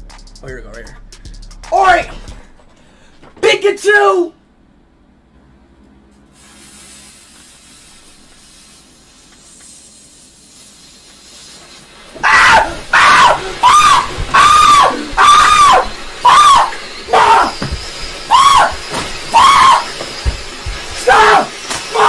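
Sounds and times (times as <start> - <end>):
firework fountain hissing: 6.3 - 22.0
man screaming: 12.2 - 17.7, 18.3 - 19.9, 21.0 - 22.0.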